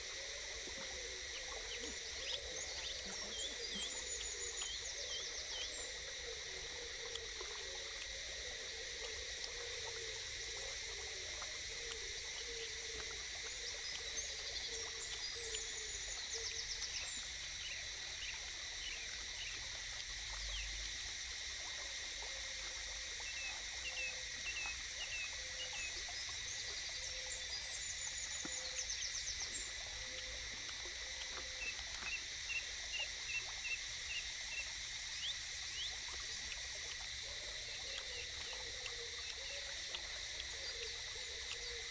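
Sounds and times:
high insect drone: 0:00.0 - 0:41.9.

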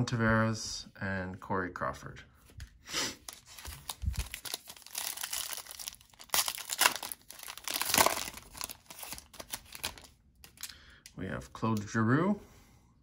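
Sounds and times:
foil wrapper tearing and crinkling: 0:03.2 - 0:10.7.

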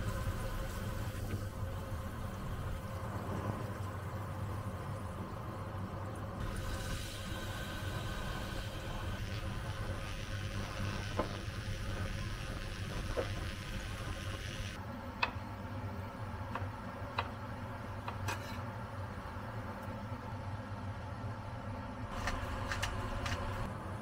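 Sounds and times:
wine simmering in a saucepan: 0:00.0 - 0:14.8.

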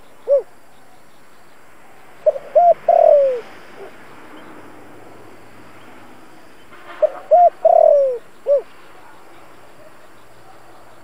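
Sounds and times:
dove cooing: 0:00.0 - 0:00.5, 0:02.2 - 0:04.0, 0:07.0 - 0:08.8.

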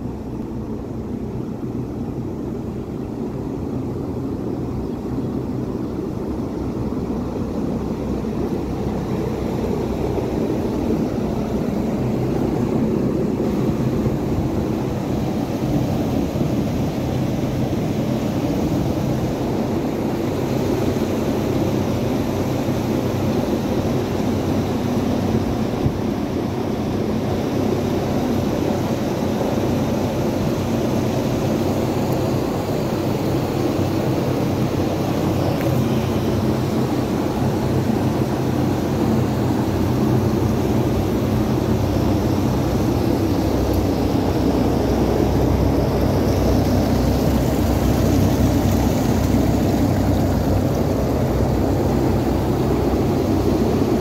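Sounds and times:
cooling tower fan drone: 0:00.0 - 0:54.0
falling water hiss: 0:05.6 - 0:54.0.

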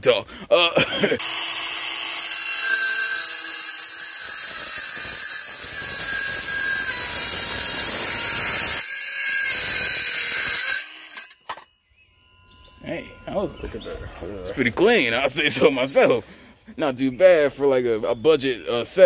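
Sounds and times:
circular saw cutting wood: 0:01.2 - 0:11.7.

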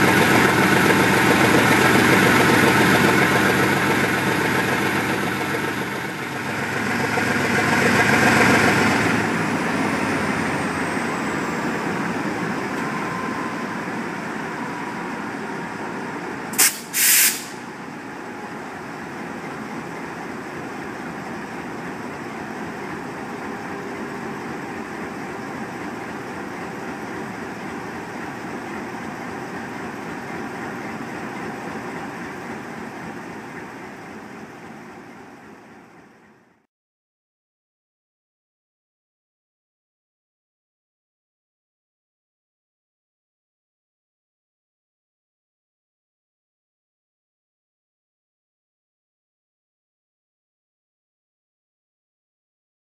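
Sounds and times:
diesel locomotive engine running: 0:00.0 - 0:36.6
air hiss bursts: 0:16.6 - 0:17.7.

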